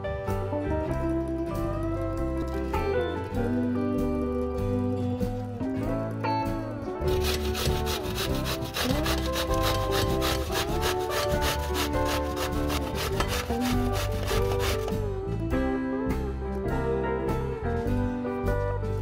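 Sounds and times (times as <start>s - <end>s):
soft guitar music: 0.0s - 19.0s
vegetable grated on metal grater: 7.1s - 15.0s.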